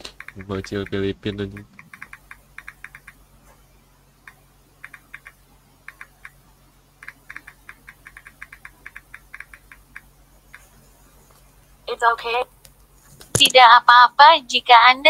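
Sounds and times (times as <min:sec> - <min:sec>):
computer keyboard typing: 0:00.0 - 0:03.2, 0:04.3 - 0:06.4, 0:07.0 - 0:10.6
faint low hum: 0:00.0 - 0:15.0.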